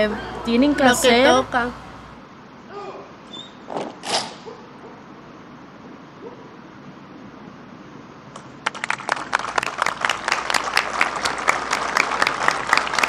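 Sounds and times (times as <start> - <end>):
hands clapping in applause: 8.4 - 13.0.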